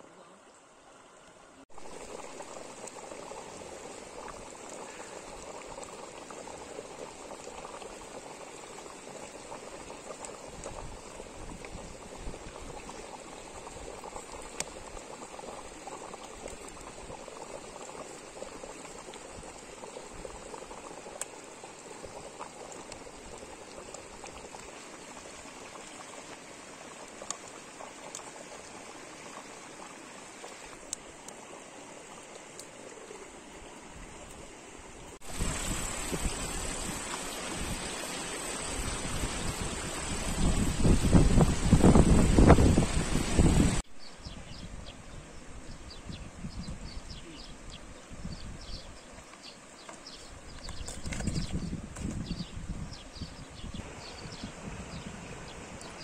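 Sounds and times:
stew boiling in a pot: 1.1s - 56.0s.

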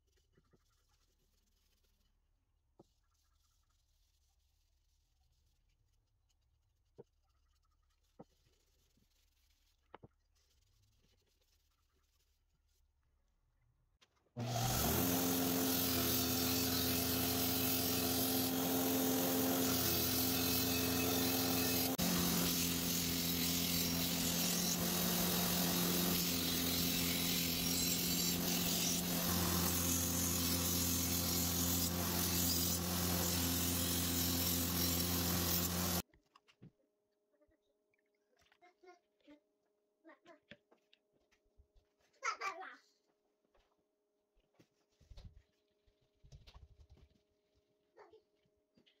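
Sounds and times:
belt grinder grinding steel: 14.4s - 36.0s.

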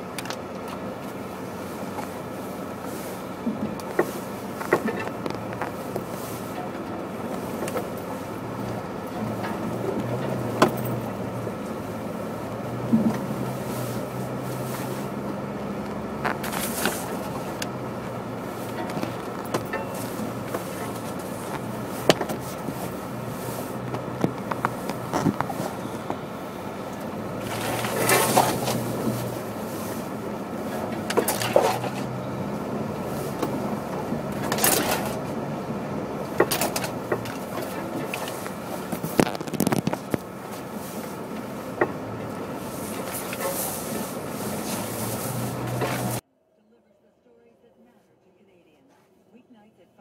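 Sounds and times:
car engine humming: 0.0s - 49.9s
small clicks and knocks: 36.4s - 40.3s.

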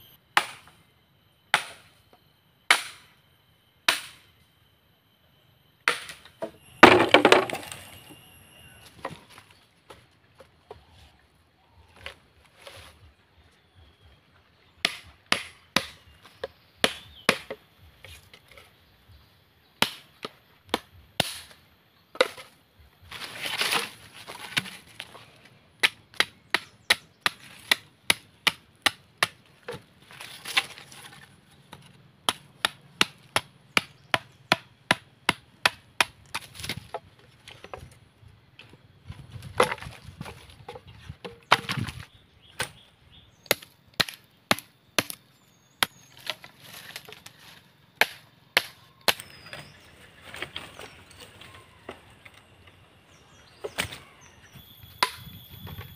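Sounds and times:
machete chopping wooden sticks: 0.4s - 0.8s, 1.5s - 1.9s, 2.7s - 3.1s, 3.9s - 4.2s, 5.9s - 8.0s, 14.8s - 18.6s, 19.8s - 25.2s, 25.8s - 38.0s, 39.1s - 42.8s, 43.5s - 45.2s, 45.8s - 51.2s, 53.5s - 54.2s.

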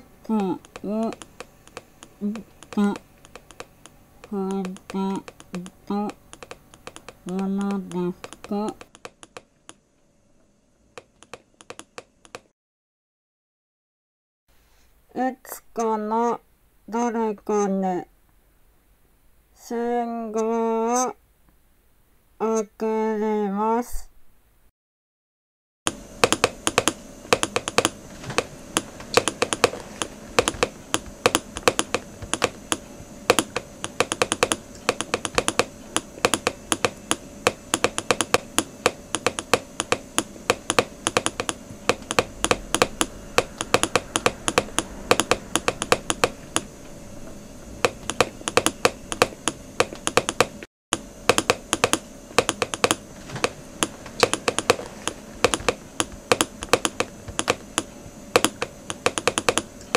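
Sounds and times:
keyboard typing: 0.0s - 9.8s, 11.0s - 12.5s, 25.9s - 46.7s, 47.8s - 50.6s, 51.3s - 53.6s, 54.2s - 59.9s
faint steady hum: 0.0s - 12.5s, 14.5s - 24.7s, 25.9s - 59.9s.

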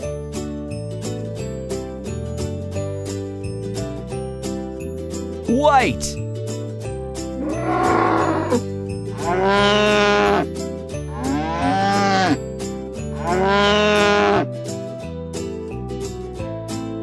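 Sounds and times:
background music: 0.0s - 17.0s
cow mooing: 7.4s - 10.5s, 11.1s - 12.4s, 13.1s - 14.5s.

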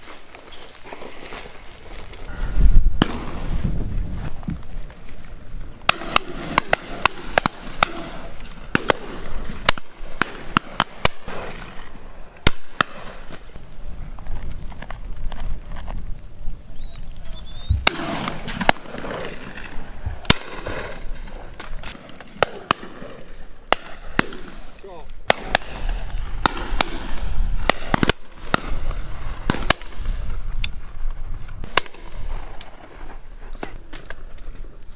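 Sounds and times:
shotgun fire: 3.0s - 3.4s, 5.9s - 11.7s, 17.8s - 30.1s, 31.6s - 32.9s.

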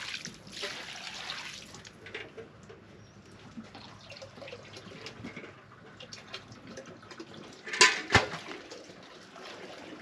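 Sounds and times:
small water splashes: 0.0s - 2.0s.

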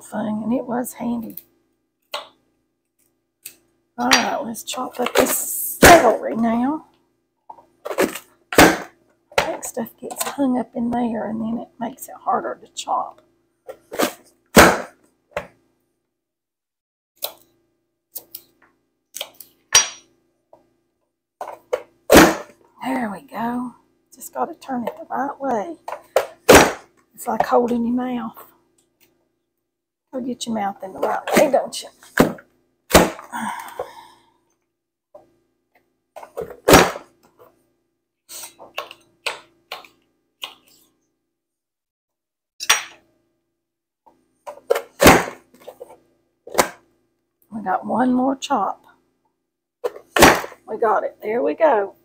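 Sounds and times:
vegetable chopper knock: 8.6s - 8.9s, 14.6s - 15.0s, 22.1s - 22.5s, 26.2s - 26.9s, 32.2s - 33.2s.

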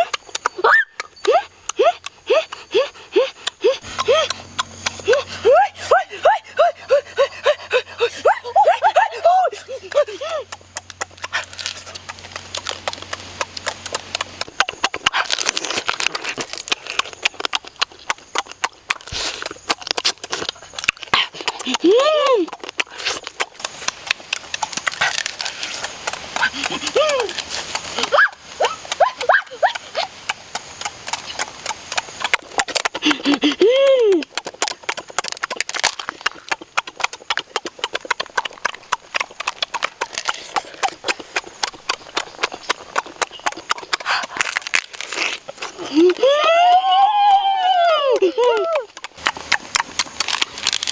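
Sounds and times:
crab being chewed and sucked: 0.0s - 50.9s
crab shell cracking: 10.5s - 21.7s, 22.5s - 26.5s, 34.2s - 37.8s, 44.1s - 45.8s, 49.8s - 50.9s.

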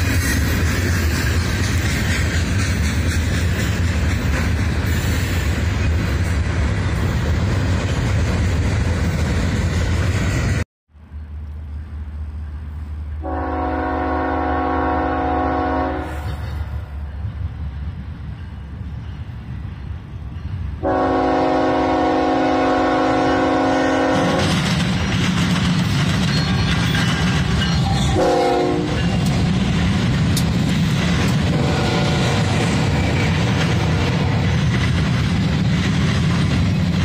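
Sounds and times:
freight train rumble: 0.0s - 37.0s
locomotive horn blasts: 13.2s - 16.7s, 20.8s - 24.6s, 27.8s - 29.2s, 31.5s - 32.5s.

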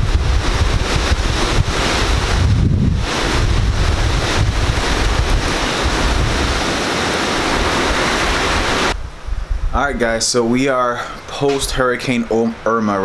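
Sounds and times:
heavy rain: 0.0s - 9.0s
wind buffeting microphone: 0.0s - 11.8s.

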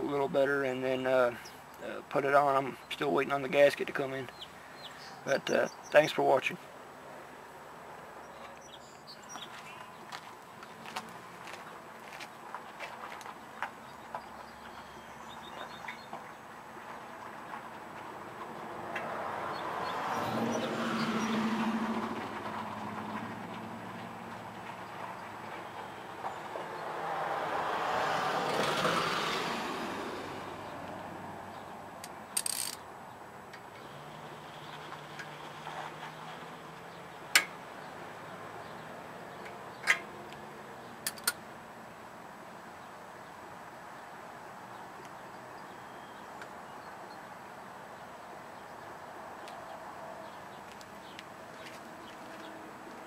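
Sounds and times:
vehicle passing by: 17.3s - 32.7s, 33.8s - 40.9s
metal tools clicking on engine: 32.0s - 32.8s, 41.0s - 41.4s.

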